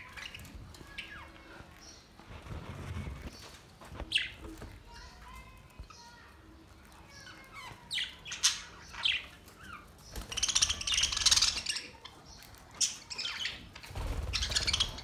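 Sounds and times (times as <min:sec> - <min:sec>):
budgerigars chirping and squawking: 0:00.0 - 0:02.1, 0:07.1 - 0:15.0.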